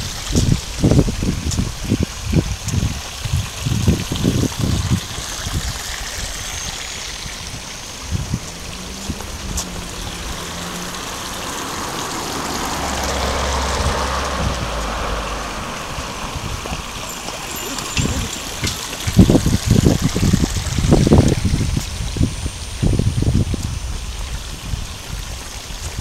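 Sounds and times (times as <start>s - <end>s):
stream trickling over stones: 0.0s - 26.0s
car passing: 5.2s - 21.7s.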